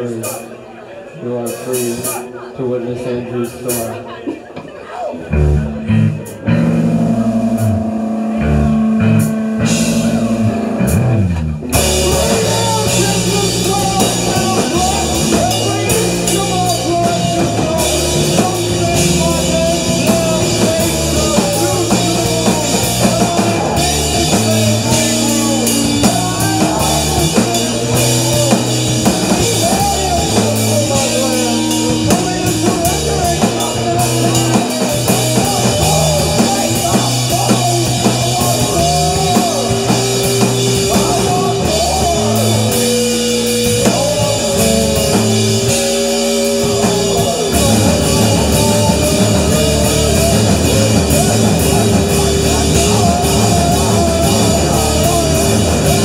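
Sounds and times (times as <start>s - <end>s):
electric bass: 5.2s - 56.0s
electric guitar: 5.2s - 56.0s
drum kit and cymbals: 6.2s - 56.0s
person singing: 11.7s - 56.0s.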